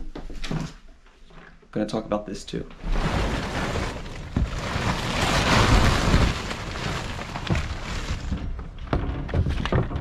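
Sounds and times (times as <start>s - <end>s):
plastic tarp rustling: 2.7s - 9.8s.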